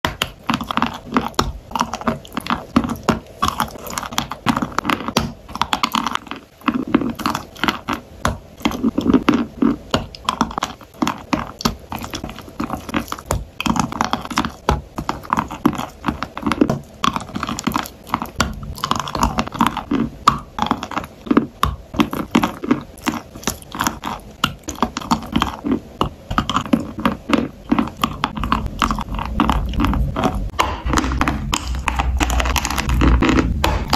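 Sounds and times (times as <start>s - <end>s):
crunching chalk: 0.0s - 33.9s
wet chewing: 0.1s - 33.9s.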